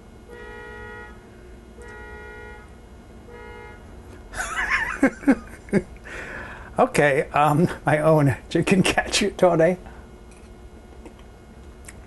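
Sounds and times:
horn-like toots: 0.3s - 3.9s.

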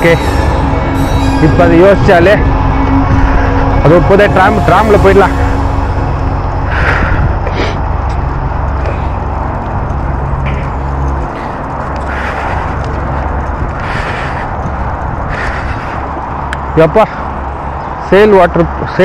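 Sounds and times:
wind rushing over microphone: 0.0s - 18.0s
bicycle tyres on wet path: 5.8s - 17.9s.

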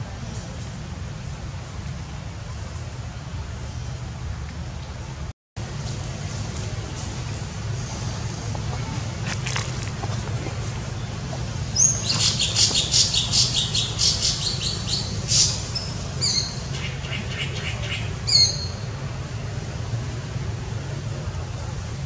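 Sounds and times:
bird chattering calls: 11.8s - 18.8s.

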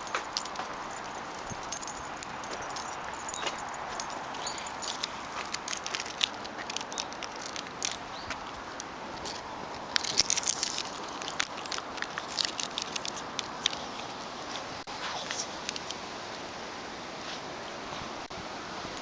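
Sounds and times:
dog claws clicking on asphalt: 0.0s - 14.1s
rustling leaves: 0.0s - 19.0s.

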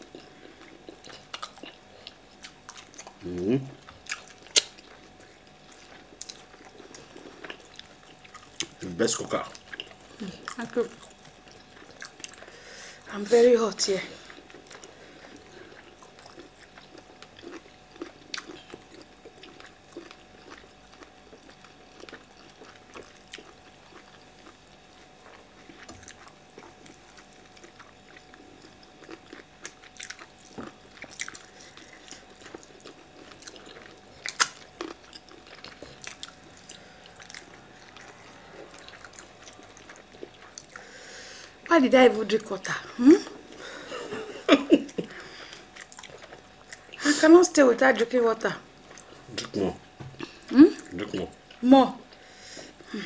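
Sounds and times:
soft chewing and wet mouth sounds: 0.0s - 13.1s, 13.8s - 47.2s, 47.8s - 52.9s.

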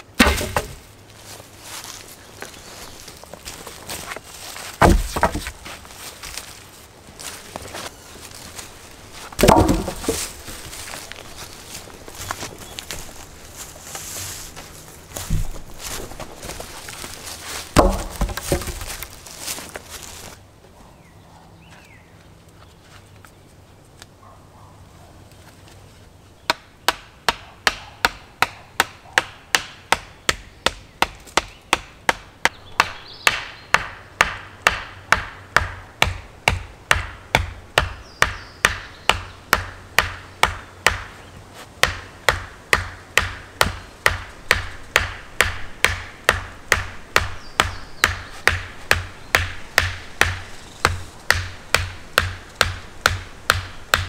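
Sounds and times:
wooden stake being pounded: 0.2s - 0.9s, 4.1s - 5.8s, 9.3s - 11.1s, 15.2s - 19.2s, 26.5s - 41.1s, 41.8s - 54.0s.

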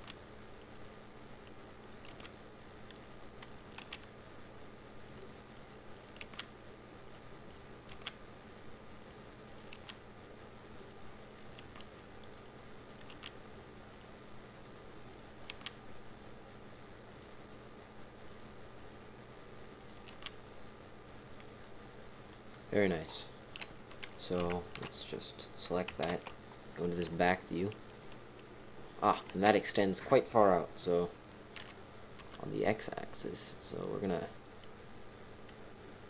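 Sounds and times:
computer mouse and keyboard clicks: 0.0s - 4.1s, 6.0s - 8.2s, 9.0s - 10.0s, 10.8s - 14.1s, 15.1s - 15.8s, 17.1s - 17.3s, 19.8s - 20.4s, 21.4s - 21.8s, 23.5s - 25.0s, 25.8s - 26.4s, 31.6s - 32.5s
faint steady hum: 0.0s - 36.0s.

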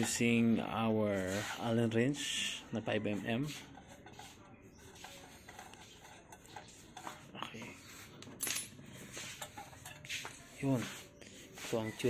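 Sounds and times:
metal clicks and clinks: 8.4s - 8.8s.

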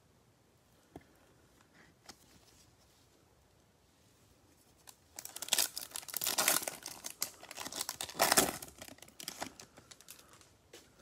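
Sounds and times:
wrapper crinkling: 4.8s - 10.4s.

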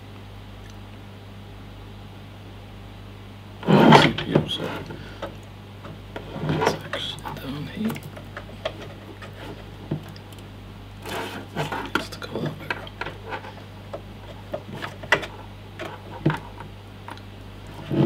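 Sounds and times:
steady low hum: 0.0s - 18.0s
cables rubbing: 3.6s - 18.0s.

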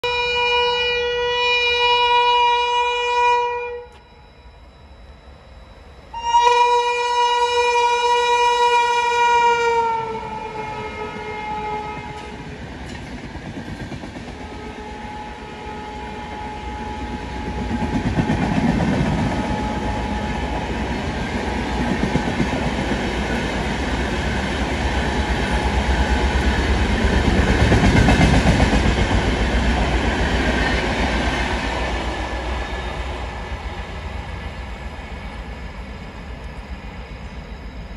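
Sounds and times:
train wheels clattering on rails: 12.0s - 14.5s, 17.0s - 32.0s.

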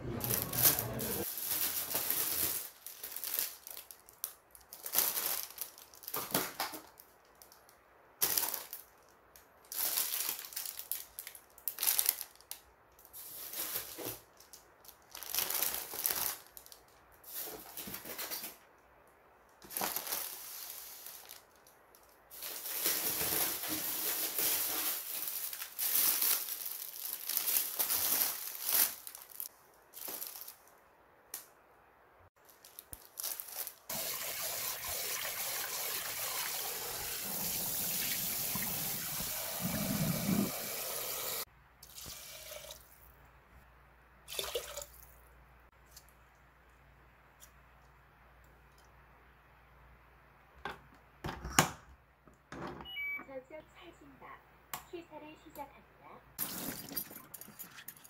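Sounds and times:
plastic bags crinkling: 0.2s - 18.7s, 19.6s - 30.8s, 32.4s - 34.0s
kitchen tap running: 33.9s - 42.8s.

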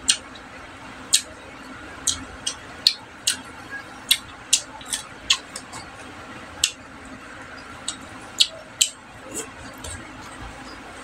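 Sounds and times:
lip smacks while chewing: 4.1s - 5.9s, 7.8s - 10.0s.

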